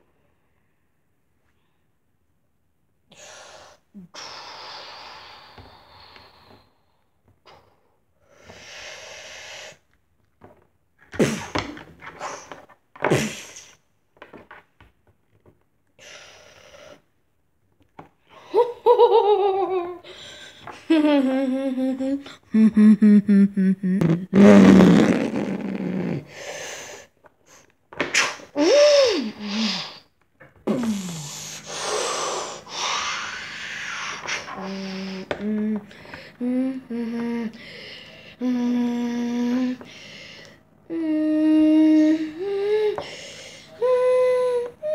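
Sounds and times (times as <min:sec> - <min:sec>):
person making mouth sound effects: 0:11.1 - 0:12.4, 0:20.9 - 0:26.3, 0:30.6 - 0:37.6.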